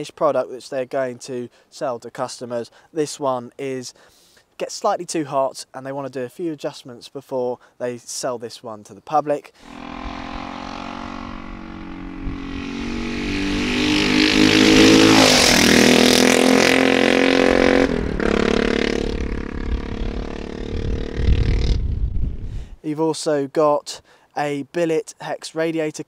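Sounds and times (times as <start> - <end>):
motorcycle engine revving: 9.6 - 22.0.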